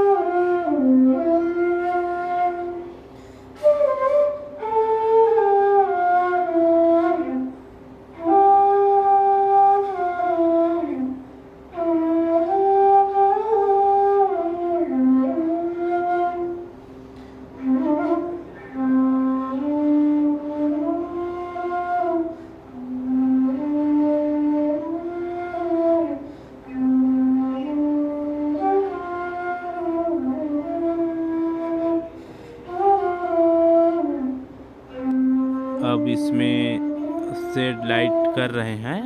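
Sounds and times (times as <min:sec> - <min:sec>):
slow gliding instrumental melody: 0:03.6 - 0:38.6.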